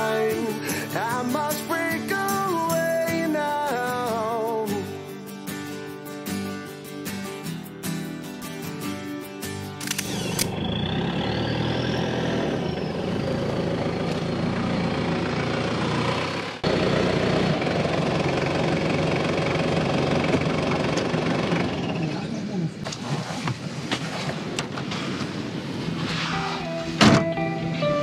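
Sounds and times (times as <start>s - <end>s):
car engine and road noise: 9.4s - 28.0s.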